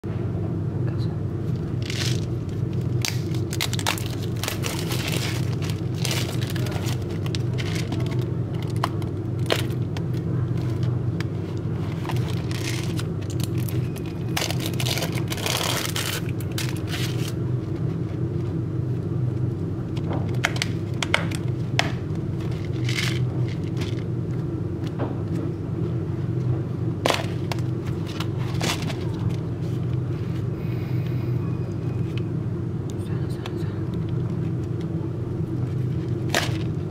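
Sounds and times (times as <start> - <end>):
steady low hum: 0.0 - 36.9
plastic wrap crinkling: 1.5 - 17.4
foil seal peeling: 1.8 - 10.9, 11.5 - 17.4.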